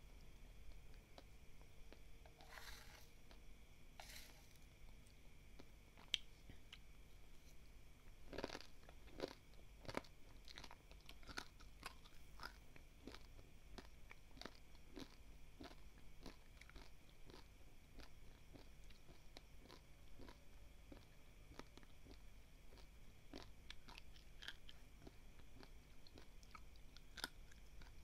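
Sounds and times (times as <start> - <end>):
person chewing crunchy rice: 1.9 - 3.4, 8.2 - 28.0.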